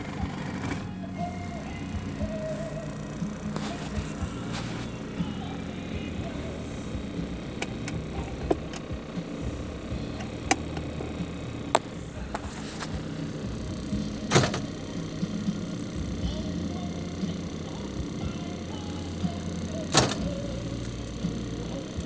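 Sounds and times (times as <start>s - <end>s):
car cabin low rumble: 0.0s - 22.0s
sharp clicks: 7.0s - 22.0s.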